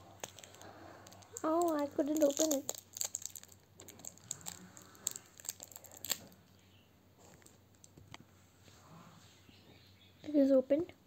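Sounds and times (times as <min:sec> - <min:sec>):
candy wrapper crinkling: 0:00.0 - 0:06.5.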